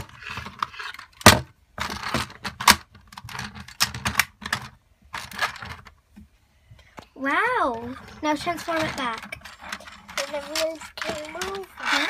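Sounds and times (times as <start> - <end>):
plastic toy parts clicking: 8.4 - 12.0.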